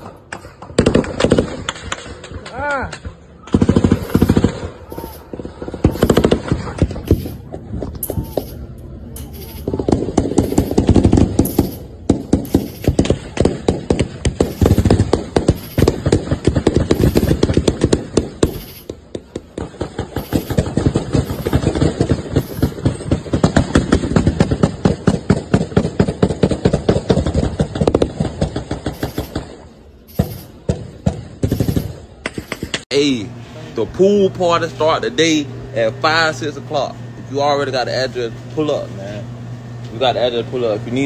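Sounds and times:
rapid gunfire: 0:00.0 - 0:08.6, 0:09.3 - 0:32.9.

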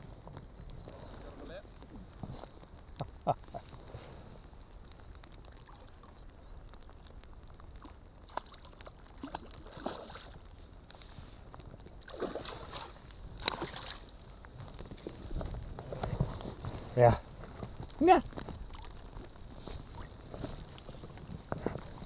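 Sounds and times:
water sloshing: 0:07.8 - 0:10.4, 0:12.0 - 0:14.2, 0:18.0 - 0:22.0
fish splashing at surface: 0:12.0 - 0:14.1.

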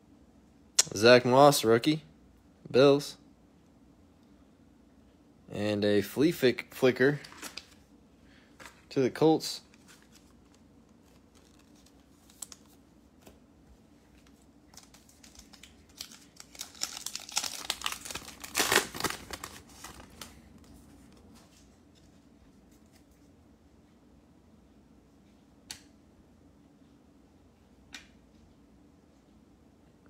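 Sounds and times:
foil wrapper tearing and crinkling: 0:09.7 - 0:12.8, 0:14.7 - 0:20.4.

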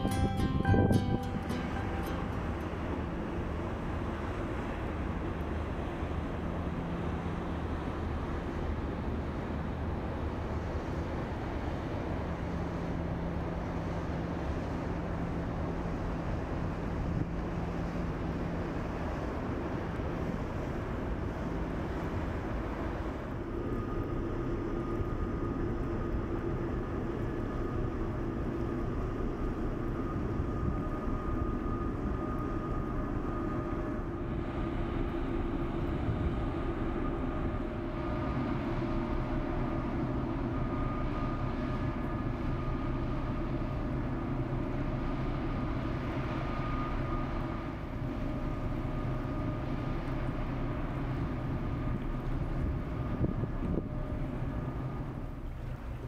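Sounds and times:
humming tones: 0:00.0 - 0:07.4
ship diesel engine droning: 0:00.0 - 0:56.0
water rushing along hull: 0:00.0 - 0:56.0.

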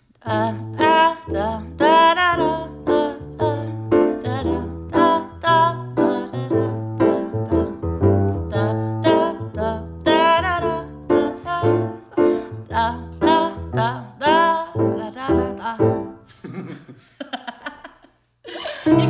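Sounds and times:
woman singing: 0:00.2 - 0:16.1
grand piano accompaniment: 0:00.4 - 0:16.3.

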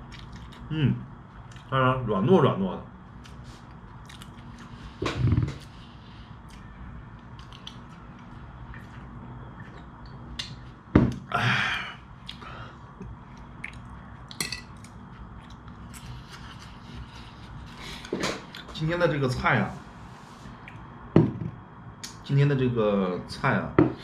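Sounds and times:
person chewing: 0:00.0 - 0:00.7, 0:01.4 - 0:01.7, 0:03.2 - 0:11.3, 0:12.2 - 0:18.7.

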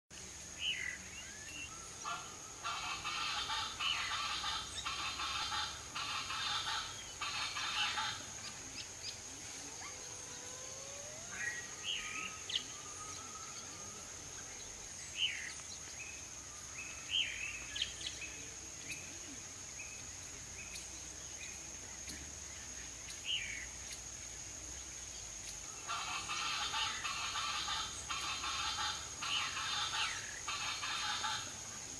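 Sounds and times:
harsh bird chorus: 0:25.7 - 0:31.9.

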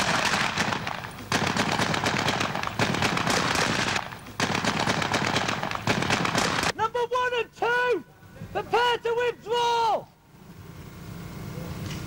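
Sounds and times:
rifles firing rapidly: 0:00.0 - 0:06.8.

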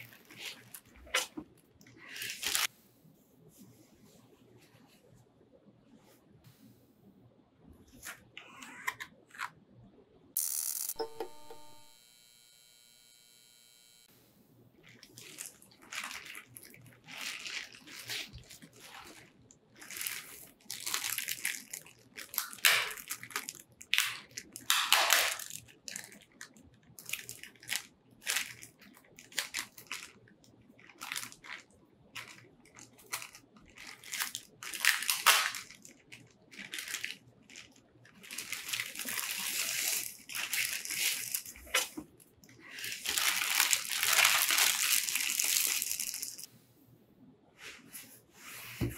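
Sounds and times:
plastic bag crinkling: 0:00.0 - 0:02.7, 0:14.8 - 0:46.5.

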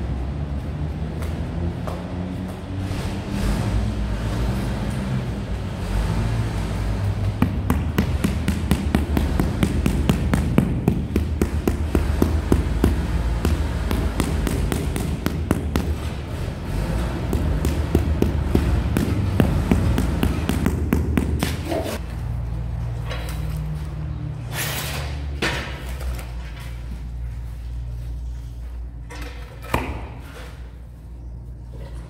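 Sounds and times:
rubber mallet tapping tile: 0:07.4 - 0:16.0, 0:17.2 - 0:21.7.

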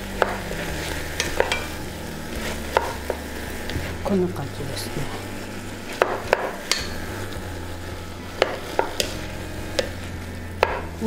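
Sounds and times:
faint frying: 0:00.0 - 0:11.0
low hum: 0:00.0 - 0:11.0
wooden spatula knocking on pot: 0:00.2 - 0:01.8, 0:02.7 - 0:04.0, 0:05.9 - 0:07.0, 0:08.4 - 0:11.0.

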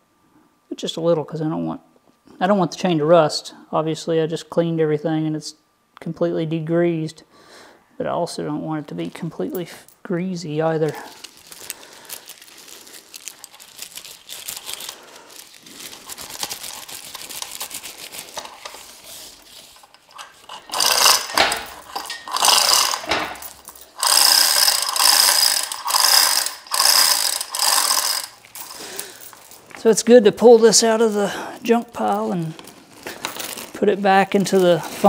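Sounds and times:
chain hoist ratchet clicking: 0:19.8 - 0:29.5.

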